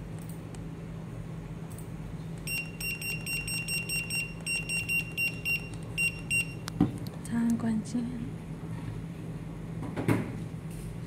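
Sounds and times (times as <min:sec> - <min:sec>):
low steady hum: 0:00.0 - 0:11.0
scanner beeping rapidly: 0:02.5 - 0:06.6.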